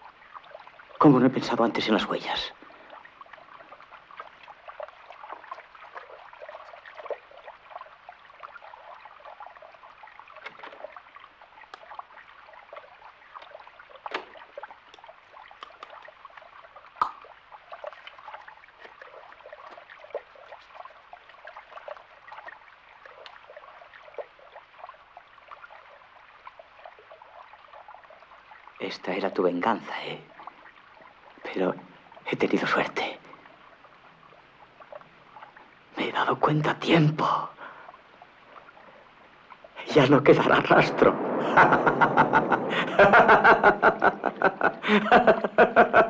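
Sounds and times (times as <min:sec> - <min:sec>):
tap water splashing into basin: 0:02.8 - 0:28.8.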